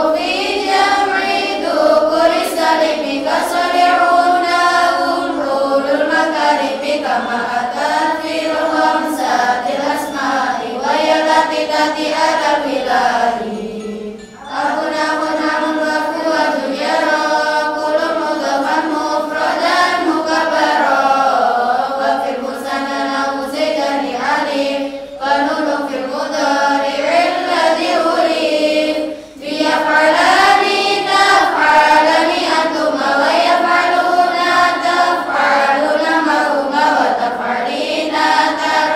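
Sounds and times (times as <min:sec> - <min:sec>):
girls chanting in unison: 0:00.0 - 0:38.9.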